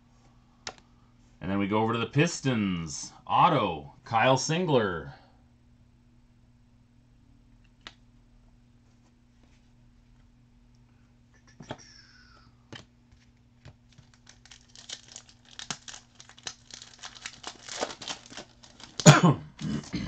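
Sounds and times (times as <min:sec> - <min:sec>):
card pack wrappers crinkling: 0:12.7 - 0:20.0
wrapper ripping: 0:13.2 - 0:19.9.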